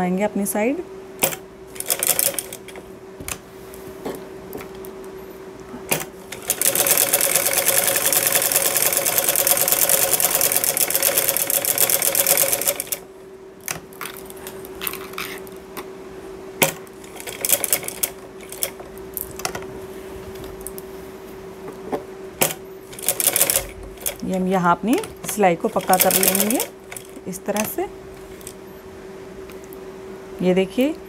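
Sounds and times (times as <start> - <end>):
faint steady hum: 0.0 - 31.0
sewing machine stitching: 5.9 - 13.0, 22.9 - 24.2, 25.0 - 27.8.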